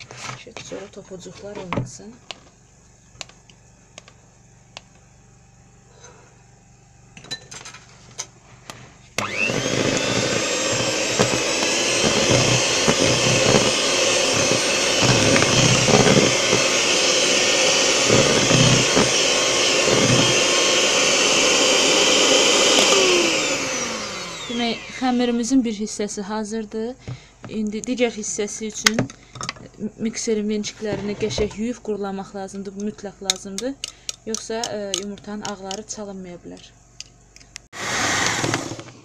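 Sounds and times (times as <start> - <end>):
electric hand mixer whisking batter: 9.2 - 25.3, 37.8 - 39.0.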